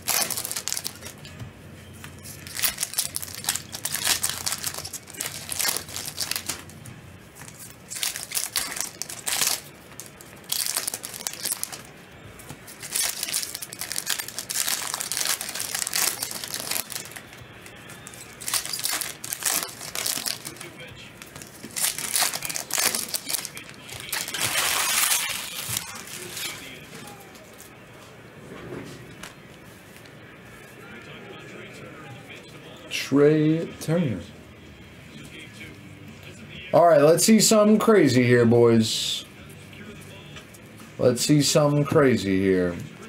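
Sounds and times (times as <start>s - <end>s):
card pack wrappers crinkling and tearing: 0.0s - 1.3s, 2.2s - 11.9s, 12.7s - 27.7s
cards being handled: 0.0s - 27.8s.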